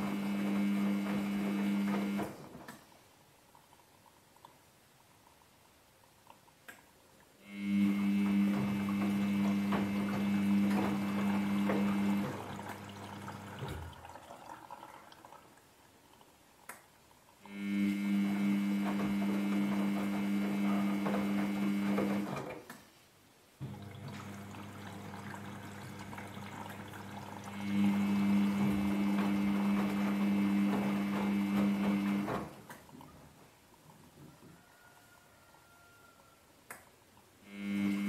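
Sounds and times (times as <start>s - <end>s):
washing machine motor whining: 0.0s - 2.7s, 7.4s - 14.9s, 17.5s - 22.6s, 23.6s - 33.0s, 37.5s - 38.0s.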